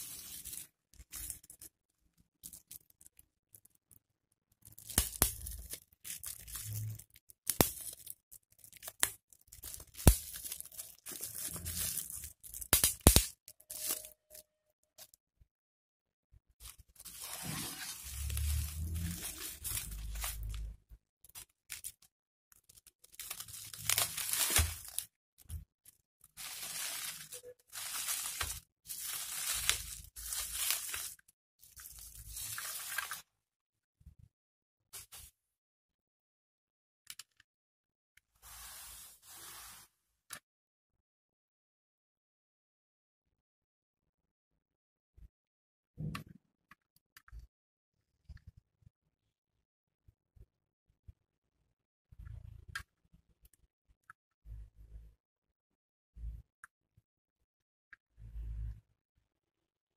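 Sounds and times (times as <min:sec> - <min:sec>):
bubble wrap crinkling: 0:00.0 - 0:01.7, 0:04.8 - 0:14.2, 0:16.6 - 0:22.0, 0:22.8 - 0:25.1, 0:26.4 - 0:33.2
bubble wrap popping: 0:04.8 - 0:14.1, 0:23.1 - 0:25.1, 0:26.4 - 0:31.2.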